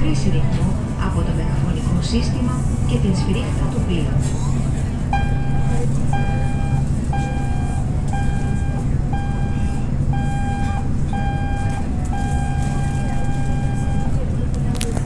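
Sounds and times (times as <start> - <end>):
low cabin drone: 0.0 - 15.0
alarm beeps over loudspeaker: 5.1 - 14.3.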